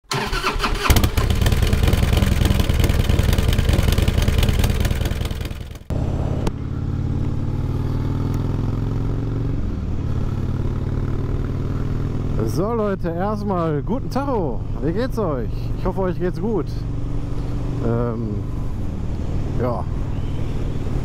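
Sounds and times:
motorcycle engine riding: 0.6 - 21.0
loud engine running: 0.9 - 6.6.

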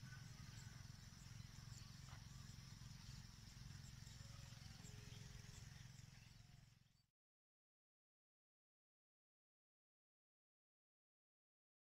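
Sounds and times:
distant bird chirps: 0.0 - 7.0
high insect hum: 0.0 - 7.0.

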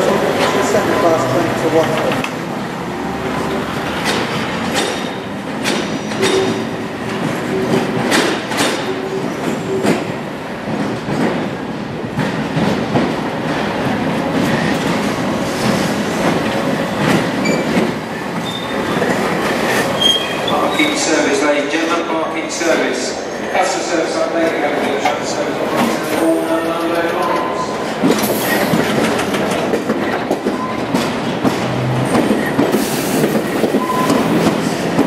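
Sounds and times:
train wheels clattering over joints: 3.8 - 22.0, 24.4 - 35.0
high train wheel squeal: 6.1 - 6.8, 17.4 - 21.3, 30.5 - 31.0, 32.7 - 34.8.

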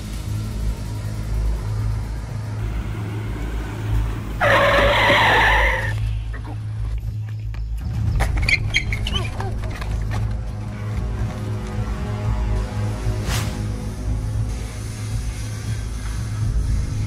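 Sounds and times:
car tyres screeching: 2.5 - 6.5.

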